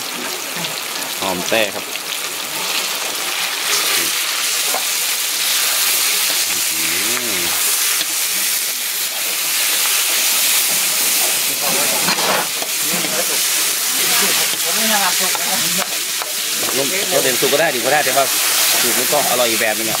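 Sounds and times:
meat sizzling in hot oil: 0.0s - 20.0s
metal spatula stirring in wok: 7.6s - 20.0s.

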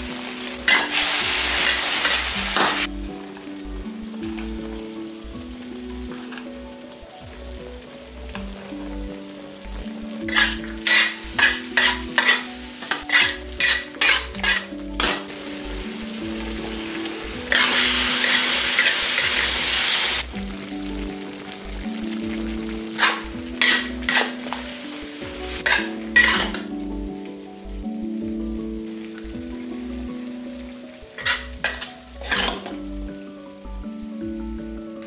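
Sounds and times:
food sizzling in wok: 0.0s - 35.0s
gentle background music: 0.0s - 35.0s
metal spatula scraping wok: 0.6s - 2.9s, 10.2s - 15.6s, 16.5s - 20.2s, 22.9s - 26.7s, 31.1s - 32.8s.

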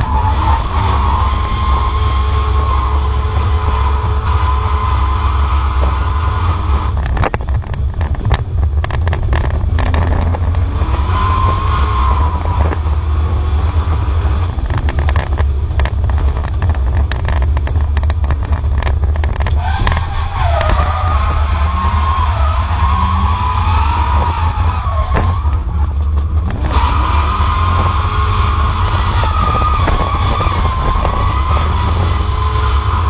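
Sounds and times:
race car engine revving: 0.0s - 33.0s
sharp clicks and knocks: 6.8s - 11.7s, 13.6s - 21.8s, 24.0s - 26.8s.

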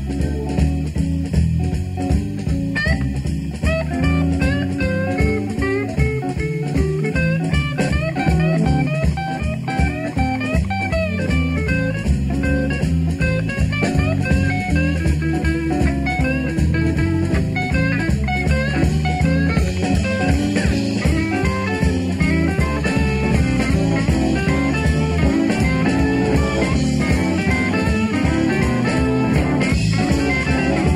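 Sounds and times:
bass and drums: 0.0s - 30.9s
electric lead guitar: 0.0s - 30.9s.

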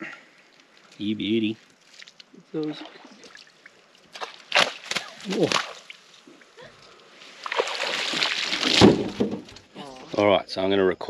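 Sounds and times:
water splashing: 1.8s - 9.6s
water pouring off net: 7.3s - 9.4s.

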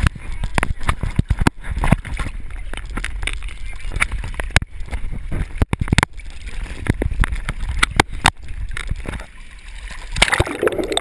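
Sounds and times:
water splashing against camera housing: 0.0s - 9.3s
wind rumble on microphone: 0.0s - 9.3s.

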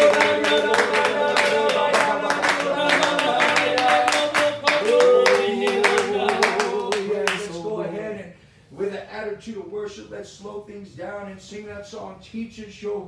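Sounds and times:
rhythmic hand clapping: 0.0s - 7.5s
worship song singing: 0.0s - 8.5s.

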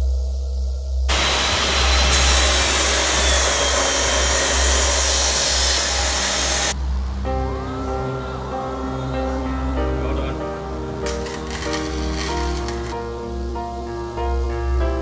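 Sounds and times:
background music with deep bass: 0.0s - 15.0s
chop saw grinding steel: 1.1s - 6.8s, 11.1s - 13.0s.

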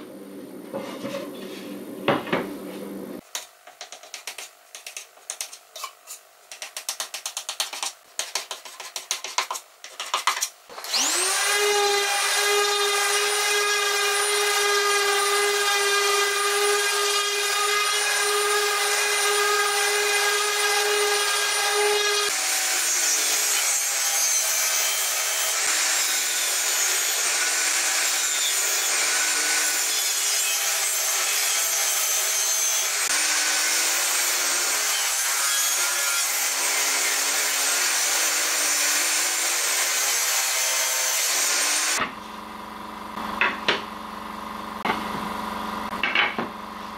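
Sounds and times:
putty knife scraping wood: 3.7s - 10.5s
table saw cutting wood: 10.7s - 42.4s.

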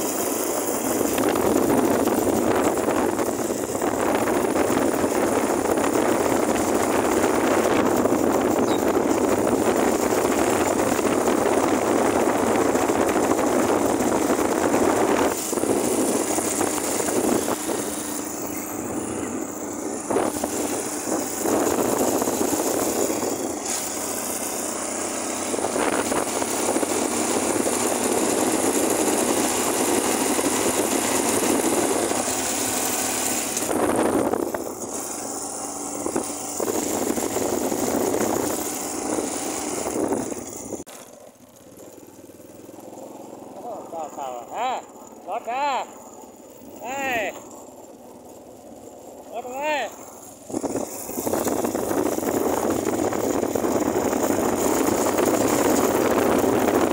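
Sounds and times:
wind rushing over microphone: 0.0s - 24.0s, 25.3s - 32.8s, 33.6s - 35.0s, 35.8s - 40.9s, 50.4s - 56.9s
motorcycle engine running: 0.0s - 56.9s.

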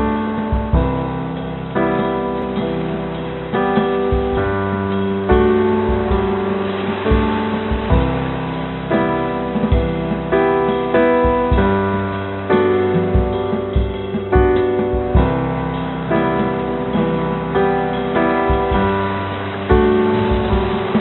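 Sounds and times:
slow piano music: 0.0s - 21.0s.

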